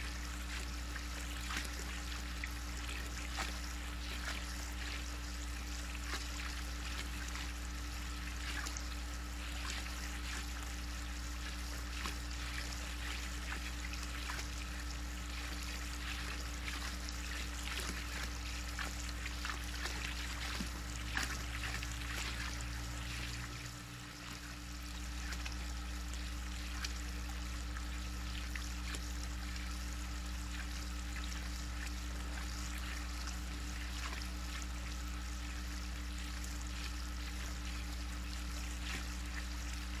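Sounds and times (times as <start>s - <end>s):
steady low hum: 0.0s - 40.0s
water trickling and lapping: 0.0s - 40.0s
animal splashing in water: 8.3s - 23.9s.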